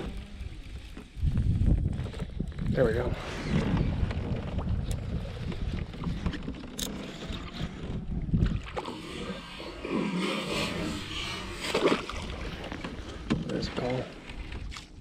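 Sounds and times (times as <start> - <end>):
wind rumble on microphone: 0.0 - 9.8
sloshing water: 0.0 - 15.0.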